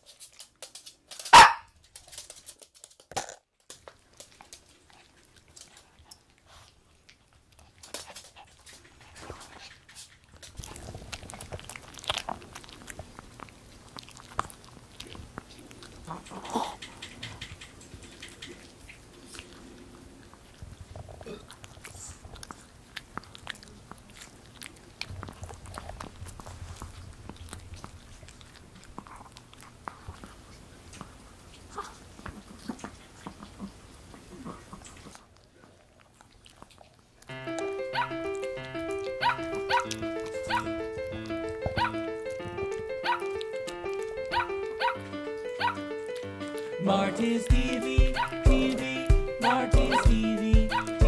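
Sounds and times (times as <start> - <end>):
dog gnawing chew stick: 0.0 - 50.9
dog barking: 1.3 - 1.7, 37.9 - 38.1, 39.1 - 40.7, 41.7 - 42.0, 43.0 - 43.4, 44.2 - 45.9, 49.4 - 50.1, 50.7 - 51.0
teeth clicking: 9.7 - 19.8, 36.2 - 46.8, 47.4 - 51.0.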